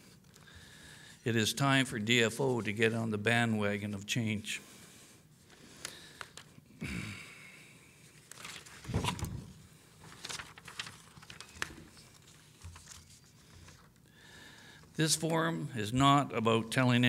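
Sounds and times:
papers rustling: 8.2s - 14.0s.

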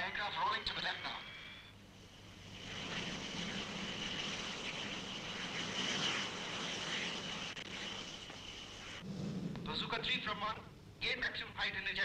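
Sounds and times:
jet aircraft rushing whine: 2.1s - 10.1s.

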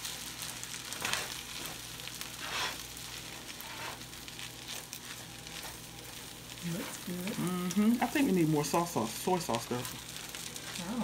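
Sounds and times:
fried rice sizzling in a skillet: 0.0s - 11.0s.

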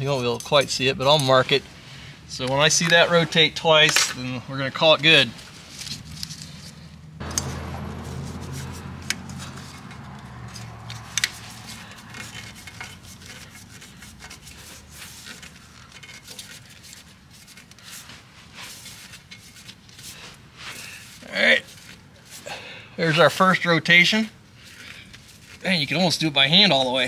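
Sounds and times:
oil filter rubbing and scraping: 0.0s - 27.0s
low hum: 6.2s - 13.2s.

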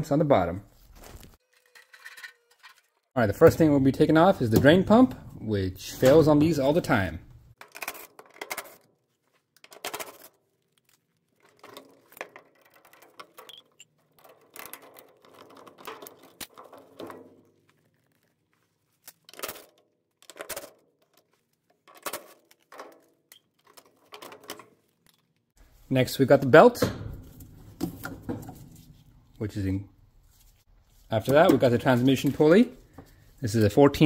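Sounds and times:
plastic parts being handled: 7.5s - 34.0s
hand tools clicking and rattling: 11.4s - 17.2s.

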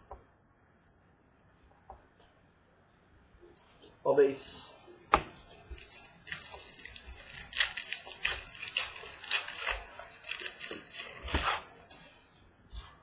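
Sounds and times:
foil wrappers crinkling: 5.5s - 12.0s.

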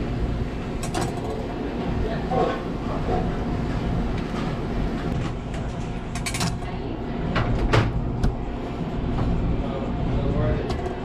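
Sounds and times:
low rumble of kitchen machinery: 0.0s - 11.0s.

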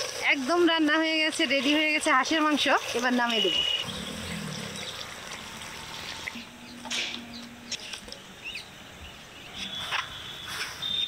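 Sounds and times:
bird chirps: 6.1s - 11.0s.

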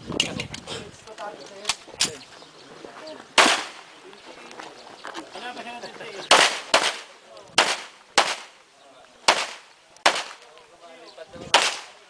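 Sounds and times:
pistol shots: 3.4s - 3.8s, 6.3s - 8.5s, 9.3s - 10.4s, 11.5s - 12.0s.

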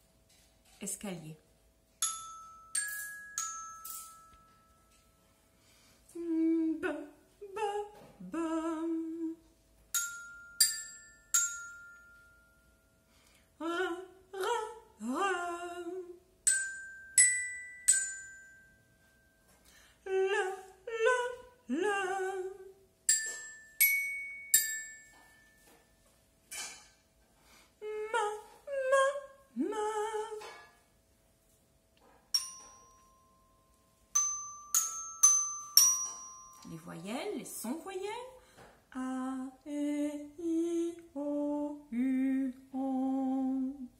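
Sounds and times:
mallet percussion ringing notes: 2.0s - 5.2s, 16.5s - 19.5s, 32.3s - 37.1s
woman singing vocal glides: 6.1s - 9.4s, 13.6s - 16.2s, 20.0s - 22.8s, 27.8s - 30.5s, 38.9s - 43.9s.

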